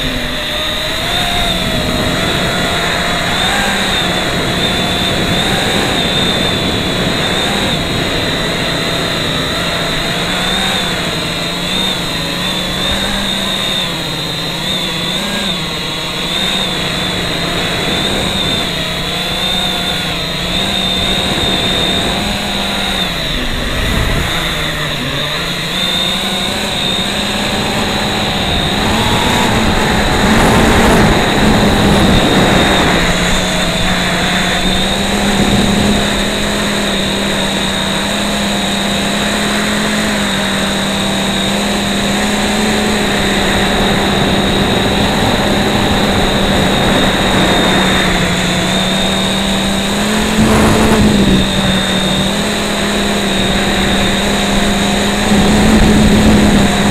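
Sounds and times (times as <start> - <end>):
drone motors and propellers whining: 0.0 - 56.9.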